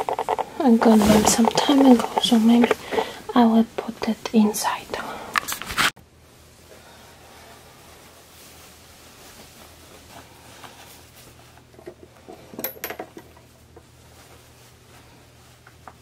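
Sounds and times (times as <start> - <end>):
sharp rustles and clicks: 0.0 - 3.0
cloth rustling: 0.0 - 3.4, 6.6 - 12.5, 13.4 - 16.0.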